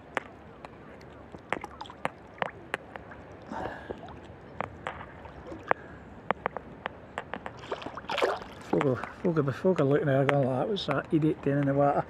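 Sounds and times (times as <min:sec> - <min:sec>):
sea water lapping: 0:00.0 - 0:09.6
short sharp splashes: 0:00.9 - 0:04.3, 0:07.5 - 0:09.3.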